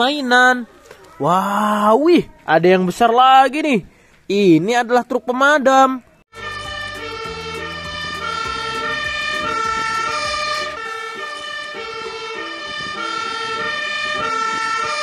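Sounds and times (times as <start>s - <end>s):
truck engine rumbling: 6.3s - 15.0s
two-tone fire engine siren: 6.3s - 15.0s.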